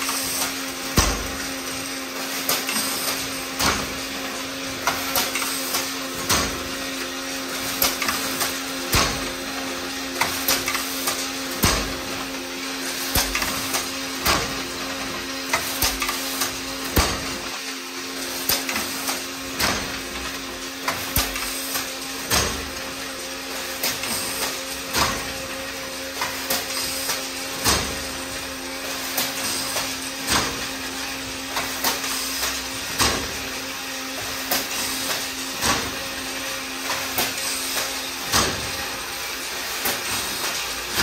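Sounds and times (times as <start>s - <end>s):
heavy machine clank: 0.3s - 1.7s, 7.8s - 9.4s, 10.2s - 12.3s, 15.6s - 17.5s, 20.9s - 22.8s, 36.9s - 38.8s.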